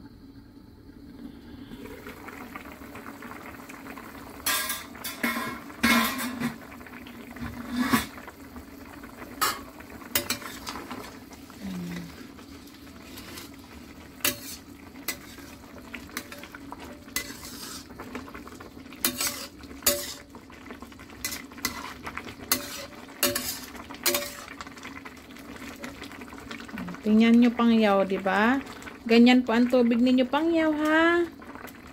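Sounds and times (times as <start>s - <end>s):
metal ladle scraping a wok: 14.2s - 15.6s, 17.1s - 18.0s, 19.0s - 20.3s, 21.2s - 24.5s.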